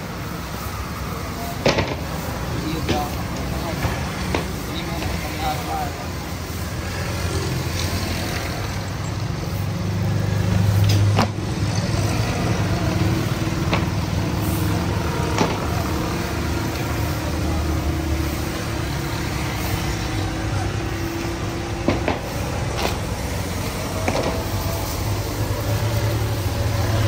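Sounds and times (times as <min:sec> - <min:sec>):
road traffic rumble: 0:00.0 - 0:27.0.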